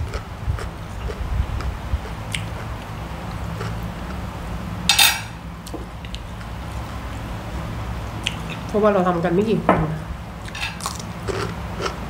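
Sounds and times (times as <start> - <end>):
steady low hum: 0.0 - 12.0
cutlery clinking on plates: 4.9 - 5.4, 10.5 - 10.8.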